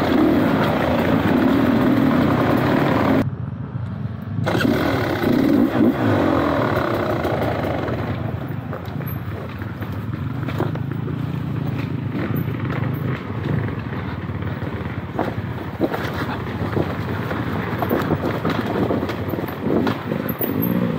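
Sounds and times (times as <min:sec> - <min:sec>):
dirt bike engine revving: 0:00.0 - 0:03.2, 0:04.4 - 0:08.3.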